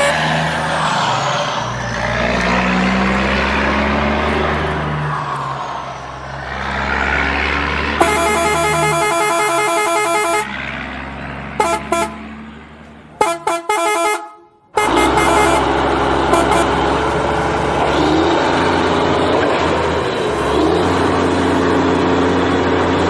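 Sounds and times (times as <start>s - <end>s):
truck horn honking: 0.0s - 0.6s, 7.8s - 18.8s
vehicle engine running: 1.8s - 23.0s.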